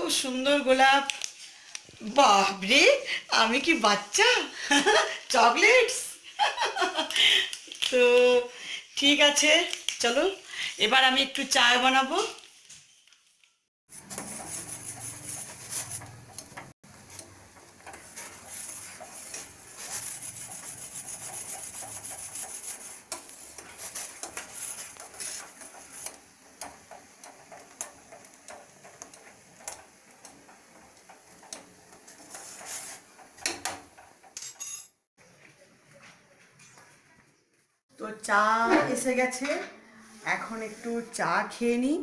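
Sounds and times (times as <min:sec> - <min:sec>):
metal spoon scraping a pan: 0:13.9 - 0:17.2, 0:17.9 - 0:34.9
tea boiling in a saucepan: 0:13.9 - 0:34.3.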